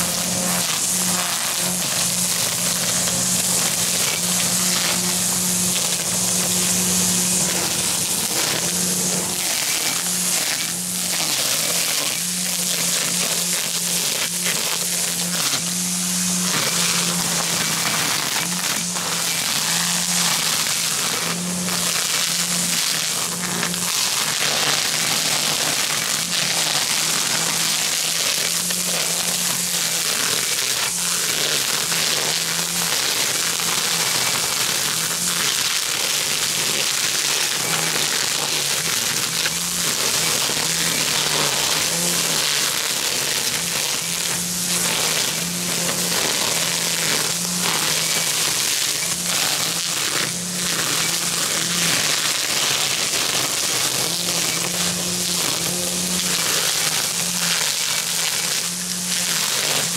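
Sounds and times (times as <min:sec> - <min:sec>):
string trimmer cutting grass: 0:00.0 - 0:59.9.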